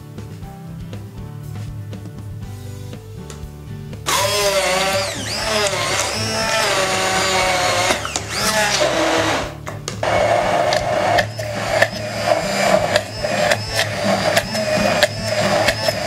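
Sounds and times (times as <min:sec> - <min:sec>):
immersion blender running: 0:04.1 - 0:16.0.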